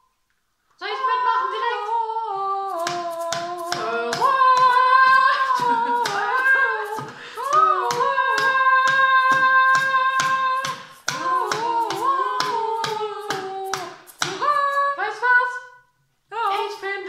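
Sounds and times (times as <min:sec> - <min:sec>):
person singing long notes: 0:00.8 - 0:15.1
hand claps: 0:02.8 - 0:14.5.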